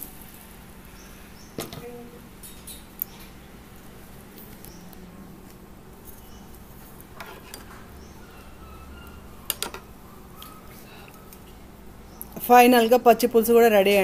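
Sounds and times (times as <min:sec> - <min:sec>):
ladle stirring soup in pot: 0:06.9 - 0:08.0.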